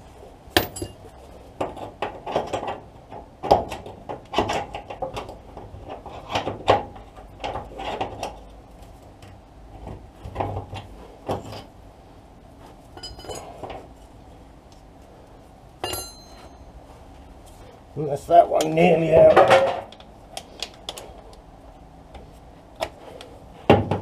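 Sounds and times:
hand tools knocking on metal: 15.8 - 16.5.

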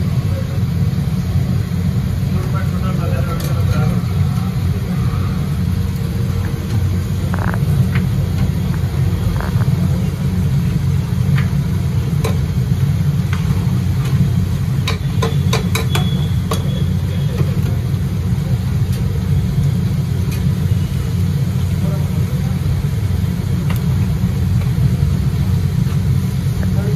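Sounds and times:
gas burner roaring: 0.0 - 26.9.

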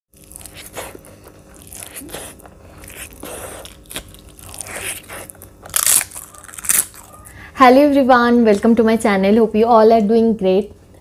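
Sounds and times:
crunchy food being chewed: 0.1 - 7.4.

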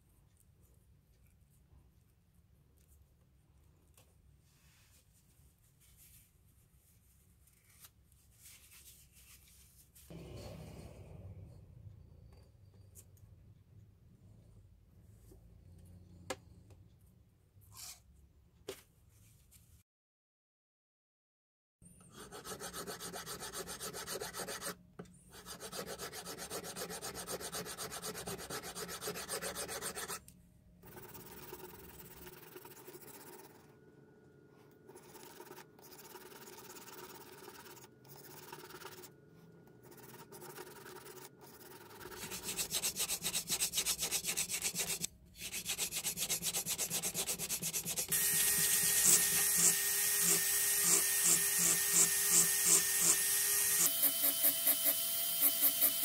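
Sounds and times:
hand file rasping on metal: 22.1 - 24.7, 25.3 - 30.2, 39.9 - 53.2.

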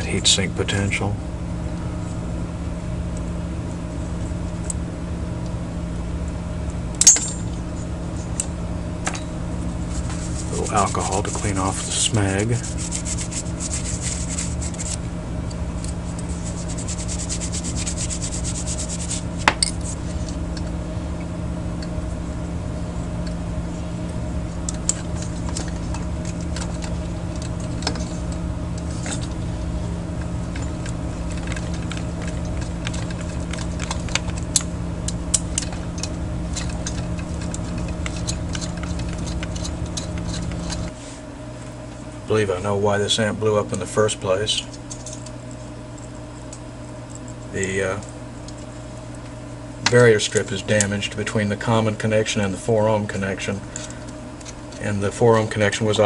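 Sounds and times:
steady low hum: 0.0 - 56.0
tissue rubbing against metal: 9.8 - 15.0, 16.0 - 20.3.

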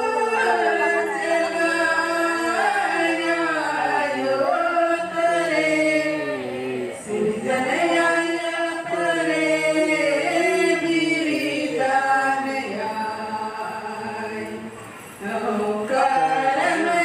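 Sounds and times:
women singing unaccompanied: 0.0 - 17.0.

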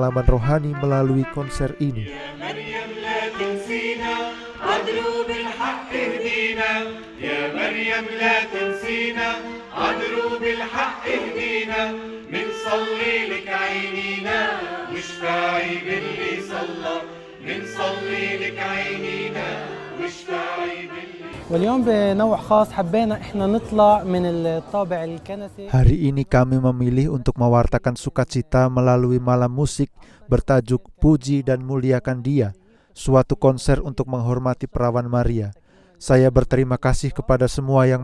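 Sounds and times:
mixed choir singing a hymn: 2.0 - 25.4.

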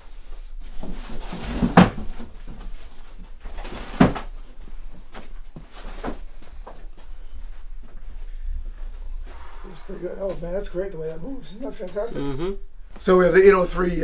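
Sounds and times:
rustling and light knocks: 0.1 - 9.2.

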